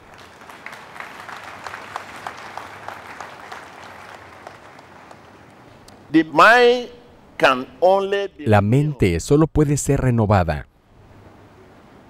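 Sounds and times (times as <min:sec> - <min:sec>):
hand claps: 0:00.0 - 0:05.4.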